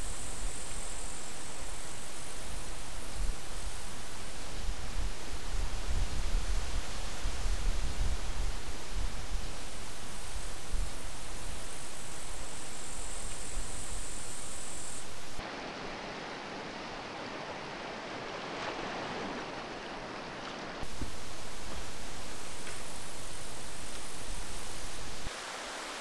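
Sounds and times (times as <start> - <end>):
steady hiss: 0.0 - 15.4, 20.8 - 26.0
small waves lapping: 0.0 - 26.0.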